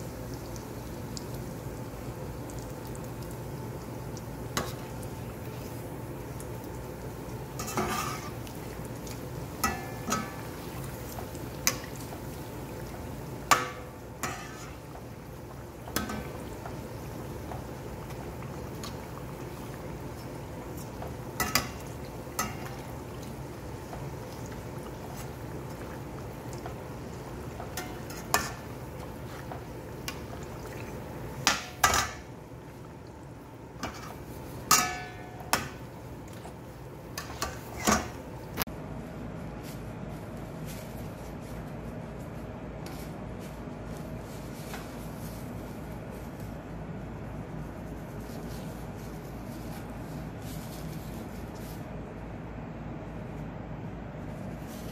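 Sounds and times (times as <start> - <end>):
doughnuts sizzling in hot oil: 0.0 - 38.7
metal skimmer clinking on pot: 9.6 - 10.5, 34.7 - 35.8.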